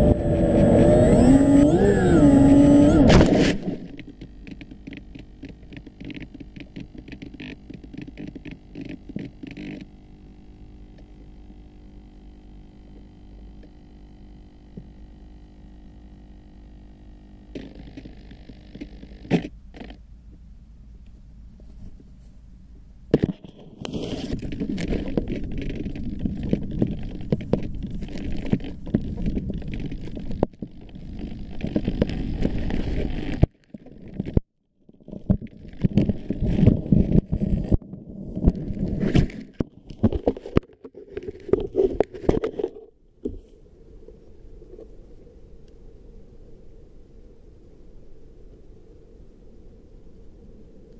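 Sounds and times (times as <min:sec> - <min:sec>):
steady rumble: 0:00.0 - 0:34.5.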